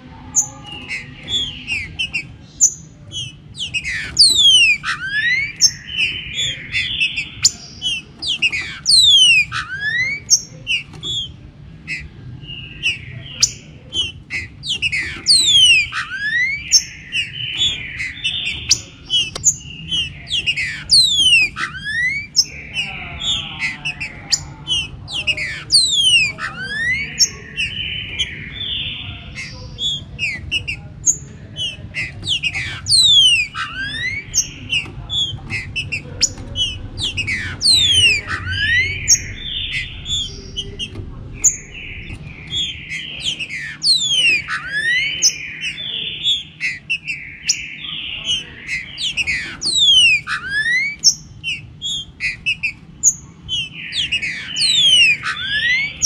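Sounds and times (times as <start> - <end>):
birds whistling chorus: 0.0 - 56.0
faint low rumble: 33.7 - 43.6.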